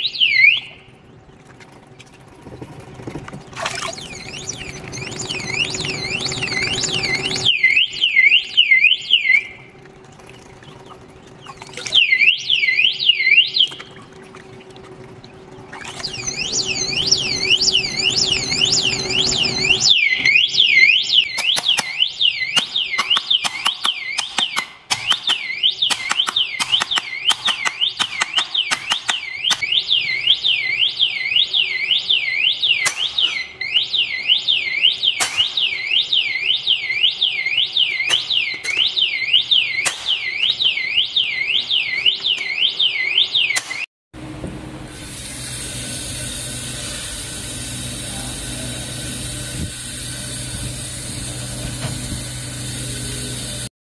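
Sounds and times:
electronic alarm siren wailing: 0.0 - 1.1, 3.6 - 43.8
steady mechanical hum: 0.0 - 40.2, 44.2 - 53.7.

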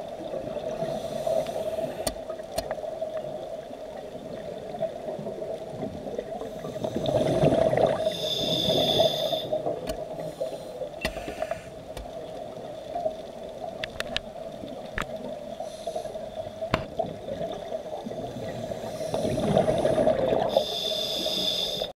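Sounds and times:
regulator hissing inhale: 0.8 - 2.2, 6.4 - 7.4, 8.0 - 11.9, 15.6 - 16.6, 18.4 - 21.9
exhaled bubbles rushing: 4.4 - 8.8, 17.0 - 20.6.

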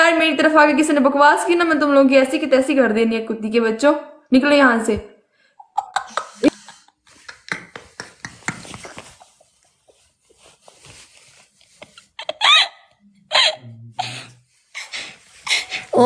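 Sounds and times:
person laughing hard: 5.7 - 9.4, 12.2 - 14.3.

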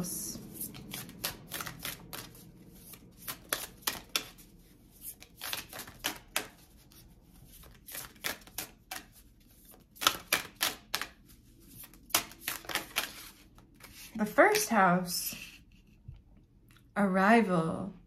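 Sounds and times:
cards being shuffled: 0.5 - 14.7.

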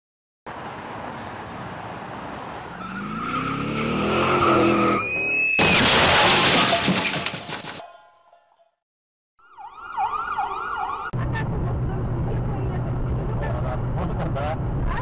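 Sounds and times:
tyres screeching: 2.7 - 7.3
car engine revving: 2.8 - 5.0
loud crash: 5.4 - 7.8.

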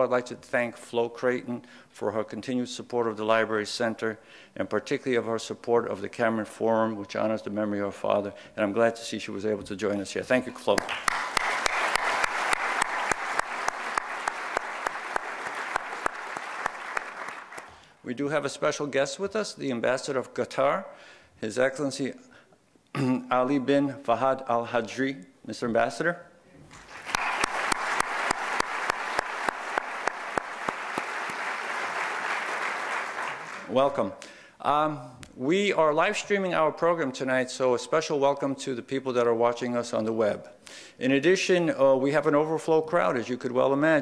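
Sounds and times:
close hand claps: 10.7 - 17.8, 26.7 - 33.7
audience applause: 10.8 - 17.7, 26.8 - 33.7.

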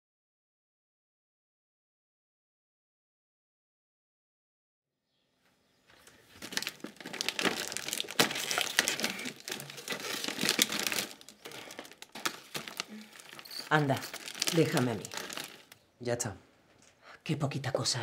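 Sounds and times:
plastic wrap crinkling: 6.0 - 15.9.

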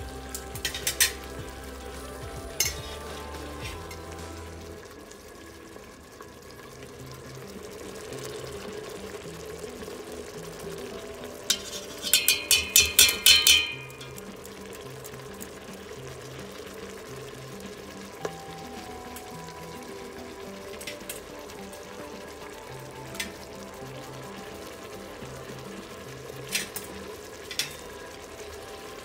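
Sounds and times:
sauce simmering: 0.0 - 29.0
metal strainer clinking on pot rim: 11.5 - 14.2.

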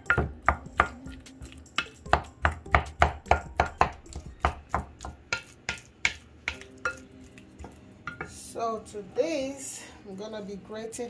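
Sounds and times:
utensil knocking on glass bowl: 1.8 - 8.4.

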